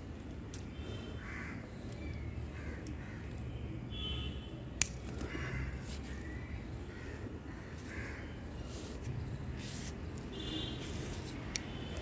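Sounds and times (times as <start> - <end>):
crow cawing: 1.2 - 1.7, 2.6 - 3.2, 5.2 - 5.8, 6.9 - 8.4.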